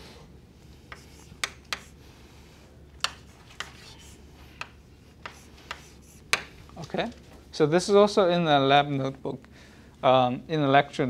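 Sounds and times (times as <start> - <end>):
chalk tapping on blackboard: 0.8 - 2.0, 3.0 - 6.6
chalk scratching: 0.8 - 2.2, 3.0 - 6.6.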